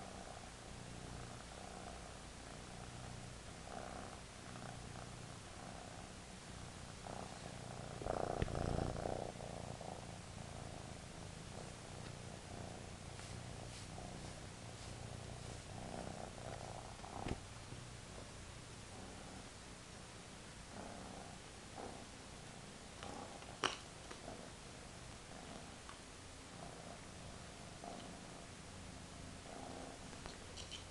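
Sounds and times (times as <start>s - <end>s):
kitten purring: 0.0s - 30.9s
rustle: 11.6s - 17.5s.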